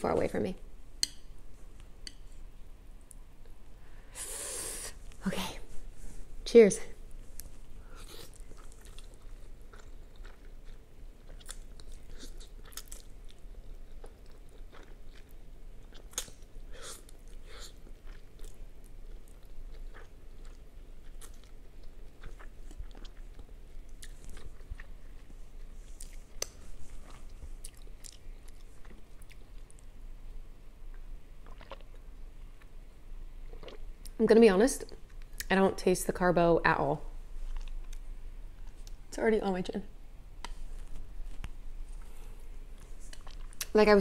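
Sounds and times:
person chewing: 7.3 - 29.9, 30.9 - 32.7, 33.4 - 33.9, 37.5 - 39.0, 40.4 - 43.7.

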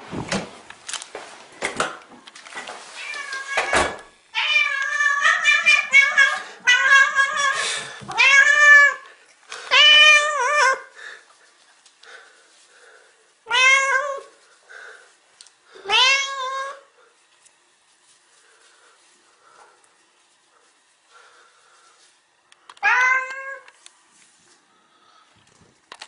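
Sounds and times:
cat meowing loudly: 3.0 - 9.0, 9.7 - 10.8, 13.5 - 14.3, 15.8 - 16.8, 22.8 - 23.7.

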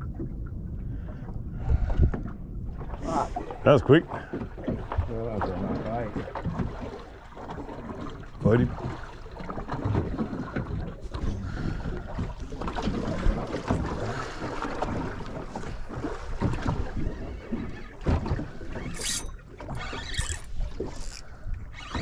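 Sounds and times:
wind buffeting microphone: 0.0 - 6.9
sea water around boat: 0.0 - 22.0.

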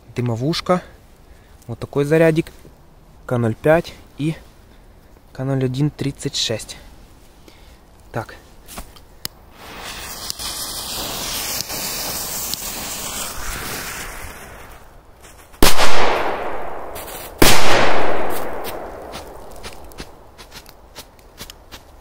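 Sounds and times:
firecrackers exploding: 9.5 - 14.9, 15.6 - 20.2.

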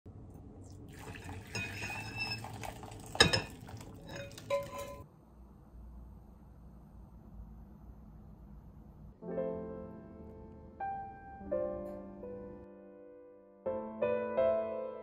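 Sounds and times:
broth pouring into bowl: 0.6 - 5.0
dishes clinking: 1.3 - 5.0.

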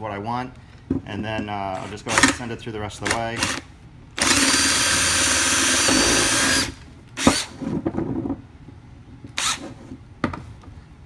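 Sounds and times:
cordless drill through plastic: 4.2 - 7.6, 9.4 - 9.7.

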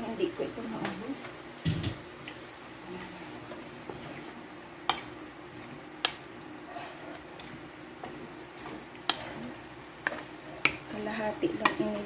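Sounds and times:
food sizzling in a wok: 0.0 - 12.0
spatula knocking on wok: 11.5 - 12.0.

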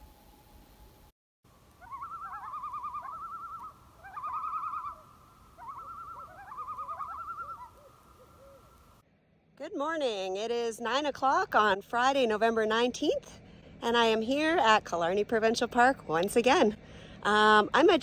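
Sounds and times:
bird trilling calls: 1.8 - 8.8.

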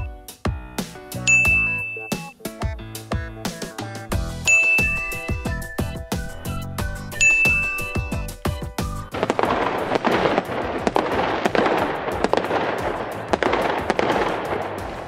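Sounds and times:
musical notes: 1.2 - 2.3, 4.1 - 12.7
fireworks crackling: 4.2 - 15.0.

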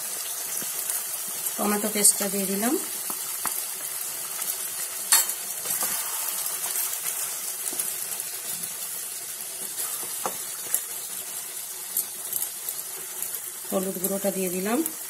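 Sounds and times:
food sizzling in frying pan: 0.0 - 15.0.

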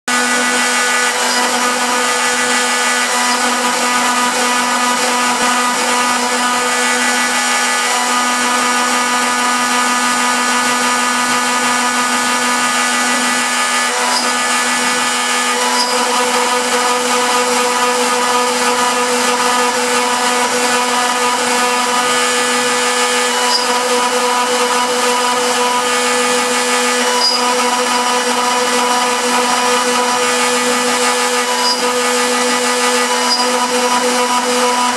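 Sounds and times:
router spindle whine: 0.1 - 34.9
bit carving into fibreboard: 0.7 - 4.2, 12.4 - 17.1, 23.3 - 24.0, 26.9 - 27.6, 31.0 - 32.2, 32.9 - 34.0.

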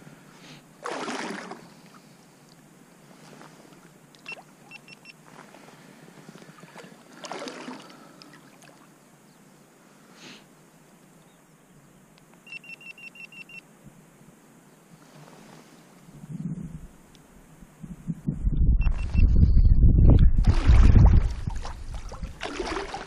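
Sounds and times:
faint water and wind noise: 0.0 - 23.0
short electronic beeps: 4.2 - 5.2, 12.4 - 13.6, 18.8 - 20.1.

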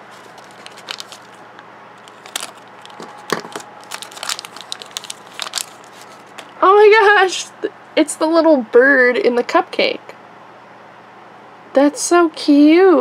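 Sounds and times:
plastic wrapper crinkling and tearing: 0.0 - 6.6.

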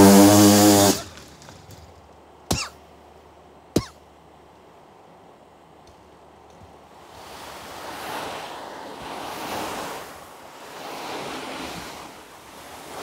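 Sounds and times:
vacuum cleaner sucking up sand: 0.0 - 1.2.

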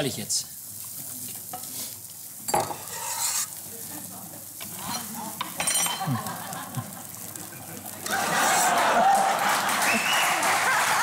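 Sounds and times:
food sizzling in a pan: 0.0 - 11.0
spoon scraping in metal pot: 2.5 - 3.6, 4.6 - 5.8
utensils clattering: 4.6 - 6.2.

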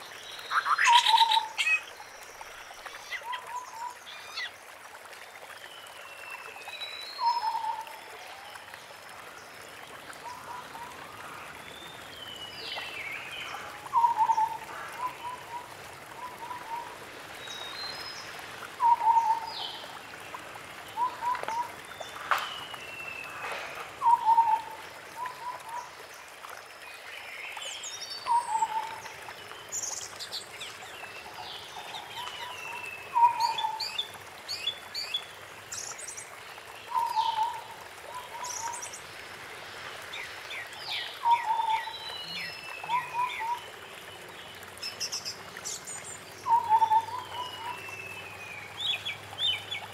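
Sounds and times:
bird chirping and trilling: 0.4 - 2.0, 2.8 - 4.6.

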